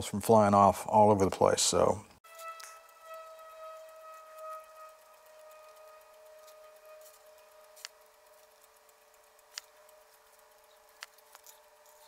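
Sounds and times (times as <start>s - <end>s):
sharp plastic clicks: 7.7s - 12.0s.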